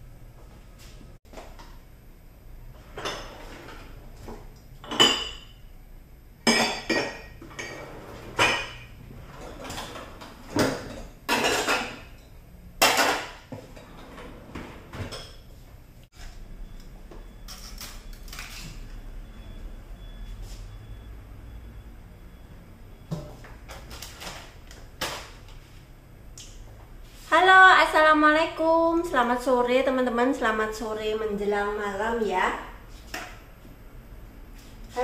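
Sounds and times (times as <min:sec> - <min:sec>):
dishes and glass bowl clinking: 0:04.8 - 0:05.6, 0:06.4 - 0:14.2.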